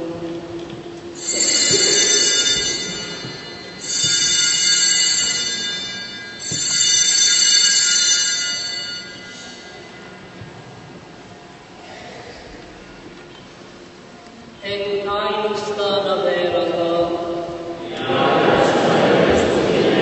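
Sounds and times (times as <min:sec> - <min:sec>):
altar bells ringing: 0:01.2 - 0:10.4.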